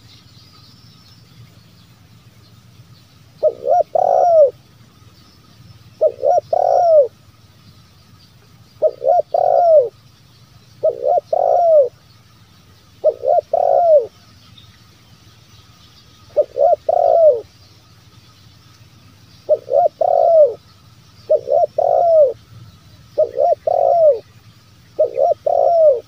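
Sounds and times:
dove cooing: 0:03.4 - 0:04.6, 0:06.0 - 0:07.2, 0:08.8 - 0:10.0, 0:10.8 - 0:12.0, 0:13.0 - 0:14.1, 0:16.3 - 0:17.6, 0:19.4 - 0:20.6, 0:21.3 - 0:22.4, 0:23.1 - 0:24.3, 0:24.9 - 0:26.0.

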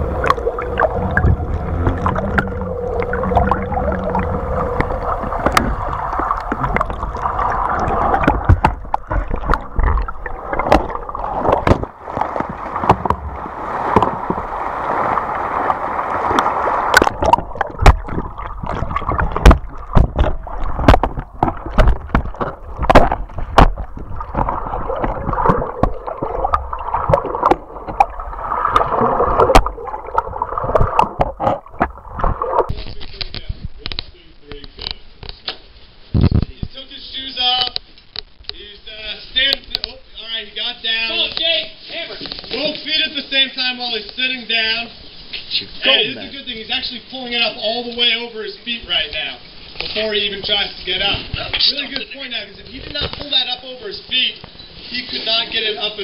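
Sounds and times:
muffled water rushing and gurgling: 0:00.0 - 0:32.8
sharp knocks and clicks: 0:17.0 - 0:26.0.

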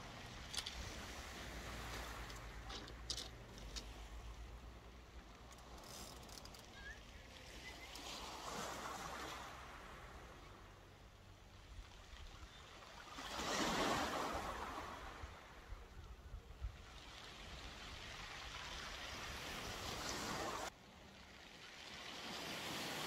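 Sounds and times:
small waves washing on shingle: 0:00.0 - 0:06.2, 0:06.9 - 0:10.0, 0:16.8 - 0:23.0.

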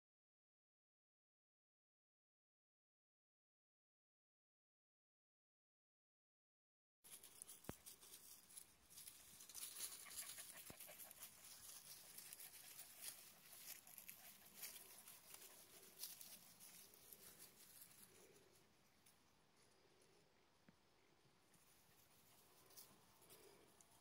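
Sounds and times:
faint rustling: 0:07.1 - 0:20.3, 0:21.5 - 0:24.0
soft patter: 0:07.1 - 0:20.8, 0:21.5 - 0:24.0.

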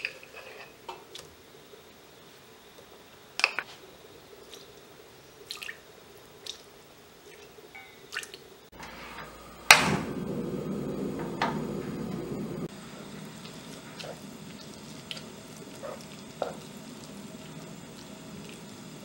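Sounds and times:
gas flame rushing: 0:08.7 - 0:13.3
gas burner lighting pop: 0:08.8 - 0:12.7.

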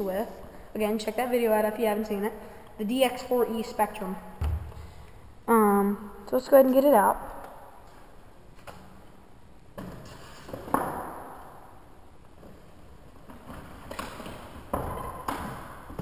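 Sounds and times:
knocks and thuds on table: 0:04.4 - 0:04.9.

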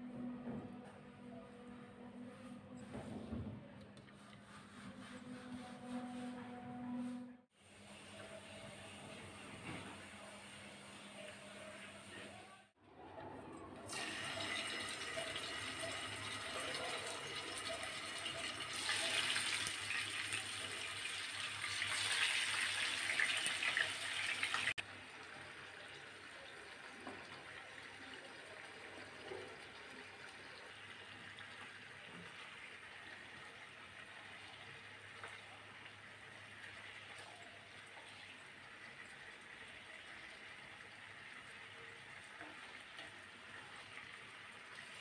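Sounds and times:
fish sizzling in hot oil: 0:18.6 - 0:24.8.

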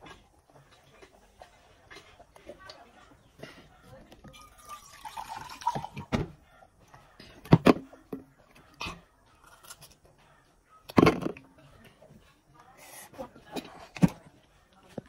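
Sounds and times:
biting and chewing food: 0:00.0 - 0:04.6, 0:06.6 - 0:12.0.

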